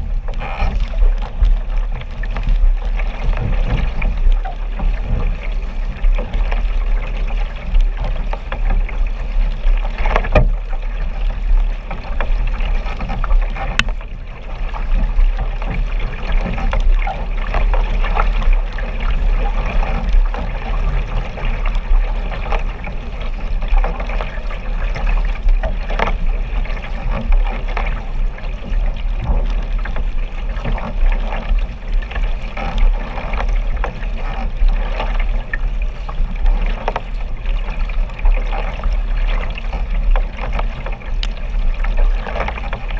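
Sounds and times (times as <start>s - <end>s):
paddles splashing water: 0.0s - 42.9s
wind on microphone: 0.0s - 42.9s.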